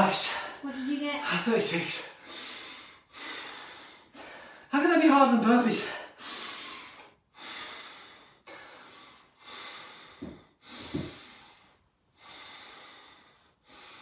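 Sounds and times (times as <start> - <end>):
man breathing hard: 2.0 - 4.7, 5.8 - 14.0.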